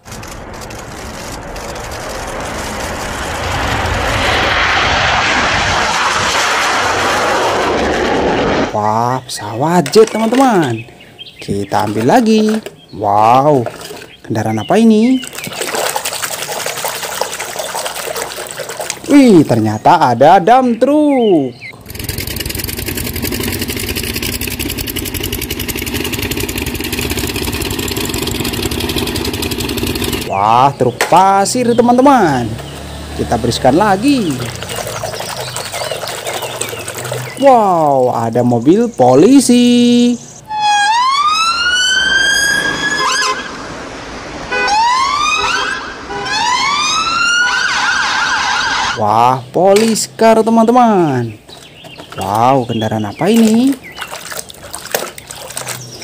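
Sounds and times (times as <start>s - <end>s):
jet engine roar: 0.0s - 9.0s
diesel engine running at low revs: 21.8s - 30.3s.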